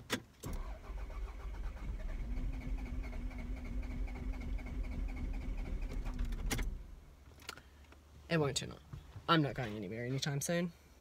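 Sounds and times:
starter motor cranking engine: 0.5s - 6.8s.

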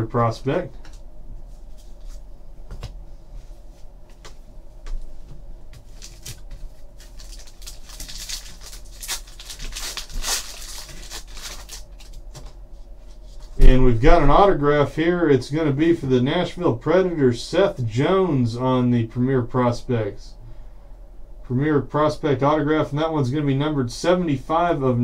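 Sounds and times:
foil card pack crinkling: 5.8s - 12.5s.

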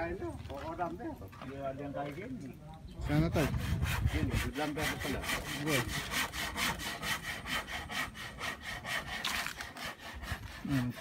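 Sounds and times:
hand saw cutting wood: 3.1s - 11.0s.

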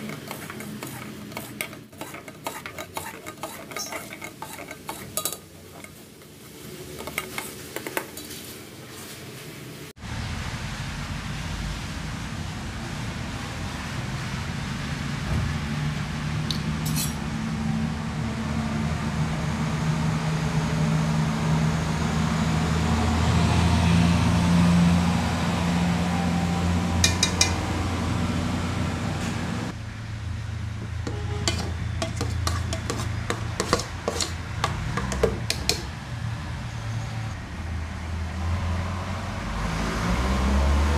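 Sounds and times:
spoons stirring and clinking in pot: 0.0s - 8.6s, 16.9s - 17.2s, 27.0s - 27.6s, 31.1s - 36.0s.

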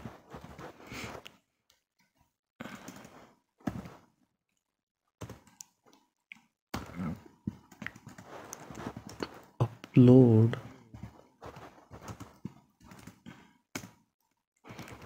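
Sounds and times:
soft breaths: 0.0s - 1.4s, 2.6s - 4.1s, 10.6s - 13.7s, 14.6s - 15.0s.

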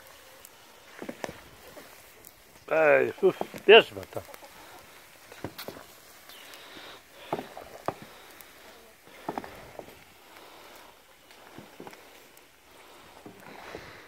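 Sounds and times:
bubbling sizzle of hot lard: 0.0s - 14.0s
wooden paddle knocking pot: 3.2s - 3.7s.

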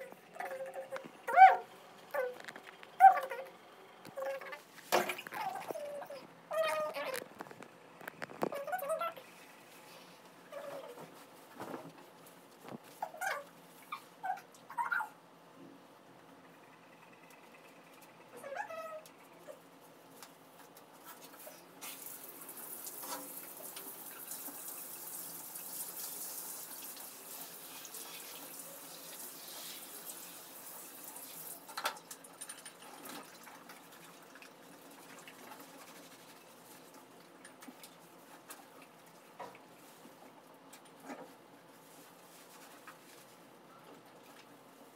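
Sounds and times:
shower spraying water: 21.8s - 32.2s.

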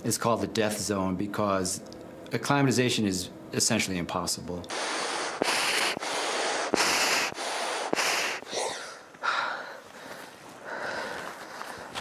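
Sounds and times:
person breathing hard: 4.7s - 12.0s.

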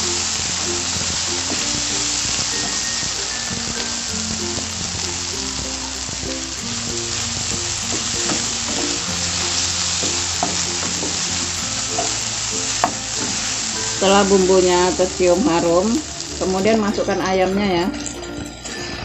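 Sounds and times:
onions sizzling in oil: 0.0s - 19.0s
soft background music: 0.0s - 19.0s
spatula scraping and tapping pan: 7.5s - 13.6s.

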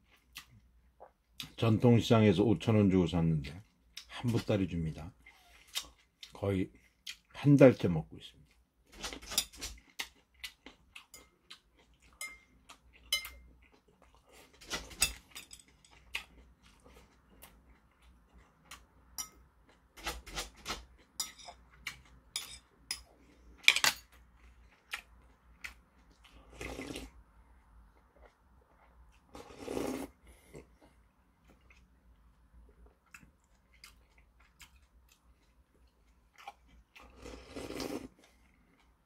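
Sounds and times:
metal utensils clinking on bowl: 12.2s - 12.5s, 14.7s - 16.0s, 19.2s - 19.4s, 21.2s - 21.6s, 22.3s - 23.1s, 23.7s - 24.1s.

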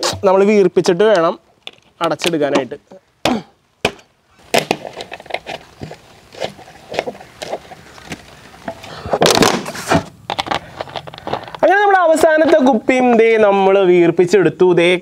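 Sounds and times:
plastic bottles crackling: 4.4s - 13.3s.

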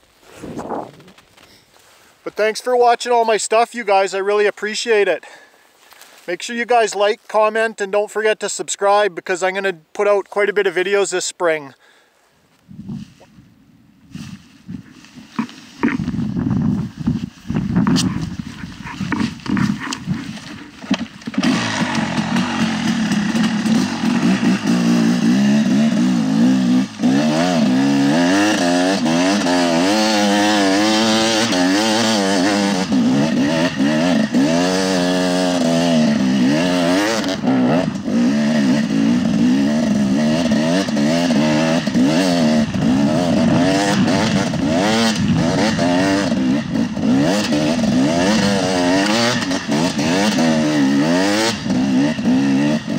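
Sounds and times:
dirt bike engine revving: 17.6s - 52.9s.

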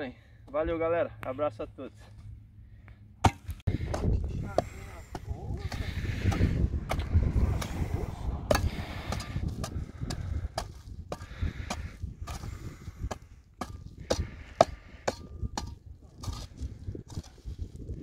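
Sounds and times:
hoe striking and scraping clay: 8.5s - 17.4s.

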